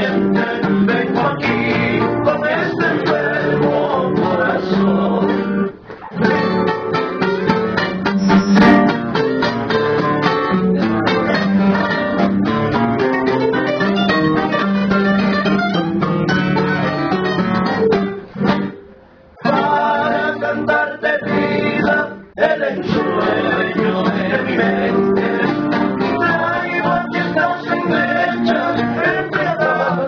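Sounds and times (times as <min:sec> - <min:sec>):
man singing: 0:00.0 - 0:05.7, 0:19.4 - 0:30.0
acoustic guitars playing: 0:00.0 - 0:30.0.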